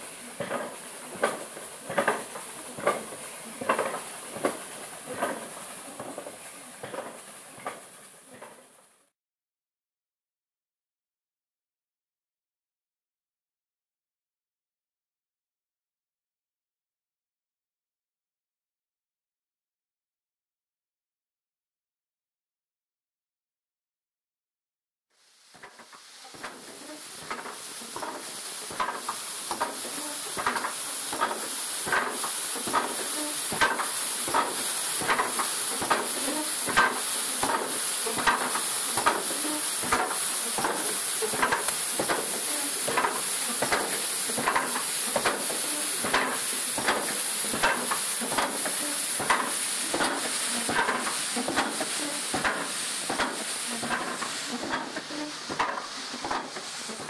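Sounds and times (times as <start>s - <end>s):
steady hiss: 0.0s - 9.1s, 25.2s - 57.0s
trip hammers pounding stone: 0.4s - 7.8s, 30.4s - 48.6s, 49.2s - 54.9s.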